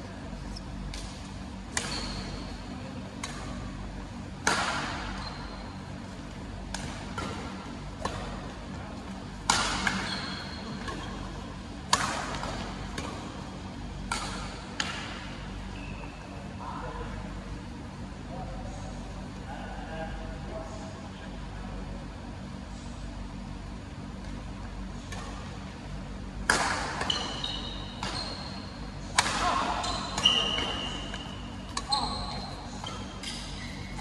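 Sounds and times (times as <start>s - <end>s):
rackets hitting shuttlecock: 4.4s - 5.2s, 11.8s - 13.3s, 14.0s - 15.2s, 26.4s - 28.4s, 29.0s - 34.0s.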